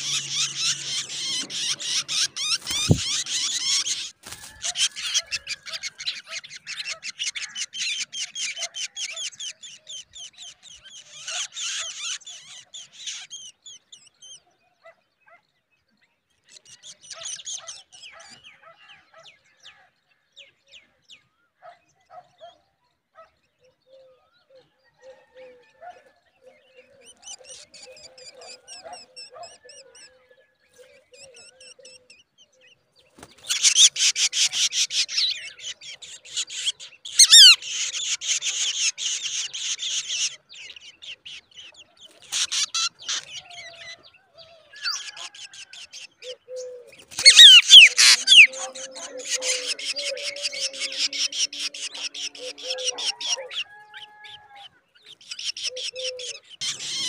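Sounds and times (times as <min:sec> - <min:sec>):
nestlings begging chirps: 0:00.0 - 0:14.1, 0:33.1 - 0:44.2, 0:44.8 - 0:57.0.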